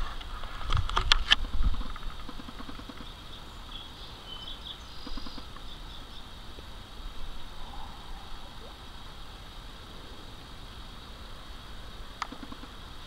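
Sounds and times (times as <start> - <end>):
faint high bird calls: 1.8 - 6.4, 12.2 - 12.8
low rumble: 6.9 - 10.6.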